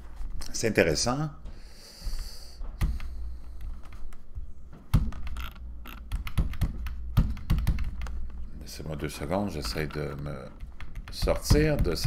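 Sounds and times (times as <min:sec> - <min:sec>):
typing on computer keyboard: 0:05.1 - 0:08.3, 0:09.6 - 0:12.0.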